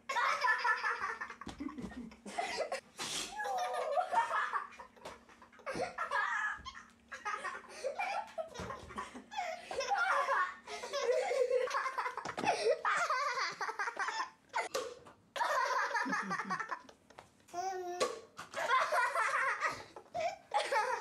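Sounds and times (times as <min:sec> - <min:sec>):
baby laughing: 0:15.4 - 0:16.9.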